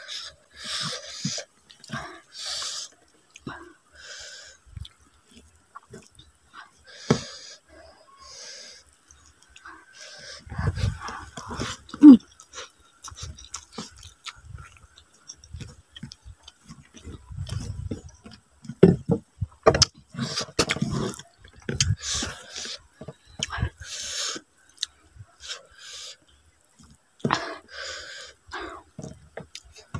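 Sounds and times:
chewing and lip smacks: 4.7s - 6.4s, 8.9s - 18.9s, 20.6s - 25.6s.

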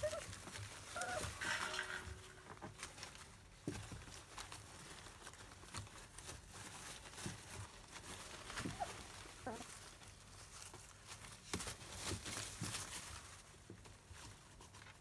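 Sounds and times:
puppies rustling in plastic bed: 0.0s - 15.0s
puppy squeak: 0.9s - 1.4s.

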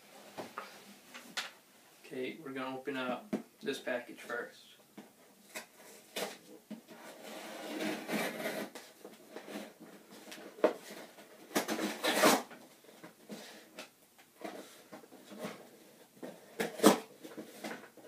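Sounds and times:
knife cutting packing tape: 11.5s - 12.5s, 16.6s - 17.1s
tape ripping off box: 11.5s - 12.5s, 16.6s - 17.1s.

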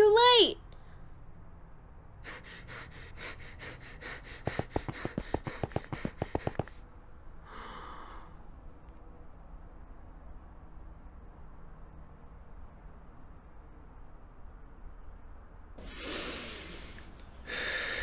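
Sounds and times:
cartoon character panting: 2.2s - 6.8s.

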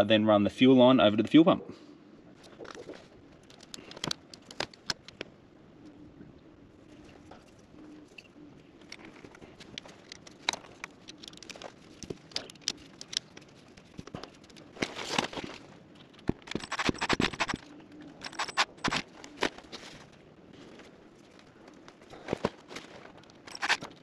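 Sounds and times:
rapid clicking and rustling: 2.4s - 5.3s, 8.8s - 24.0s.

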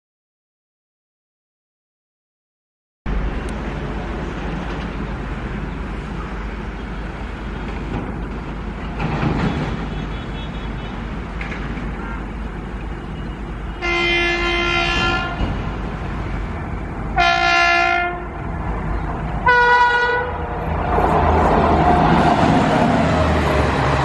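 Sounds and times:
train rumbling: 3.1s - 24.0s
locomotive dual-tone horn: 9.4s - 11.1s, 13.0s - 15.6s, 17.2s - 18.4s, 19.4s - 20.5s.

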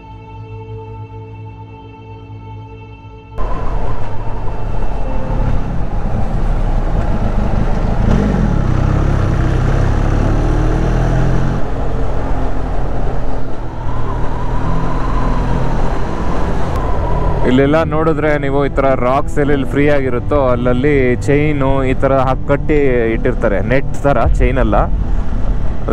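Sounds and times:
motorcycle engine: 3.4s - 18.0s
wind rumble: 3.4s - 25.9s.

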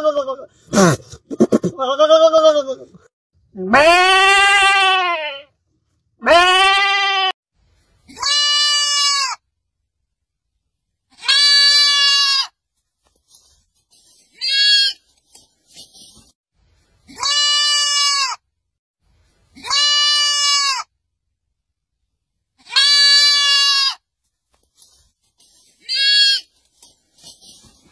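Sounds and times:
goat kids bleating: 3.7s - 5.4s, 6.2s - 7.4s, 8.1s - 9.4s, 11.2s - 12.5s, 14.3s - 15.0s, 17.1s - 18.4s, 19.6s - 20.9s, 22.6s - 24.0s, 25.8s - 26.6s.

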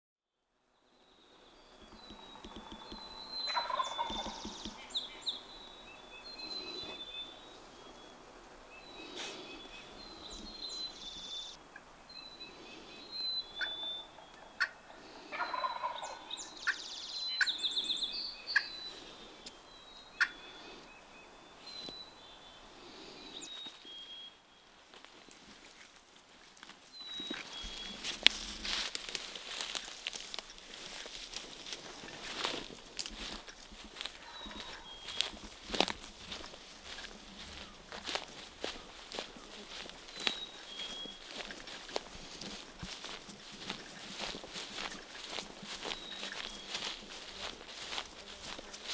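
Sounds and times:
songbirds chirping: 0.7s - 48.9s
turkey gobbling: 2.4s - 4.9s, 13.6s - 16.8s, 20.2s - 20.4s, 32.0s - 48.9s.

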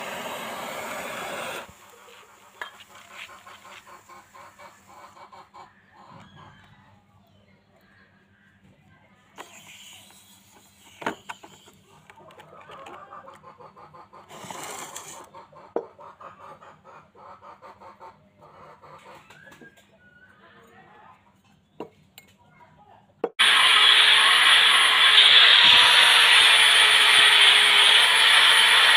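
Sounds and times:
chickens clucking: 1.6s - 7.0s, 11.7s - 21.6s.

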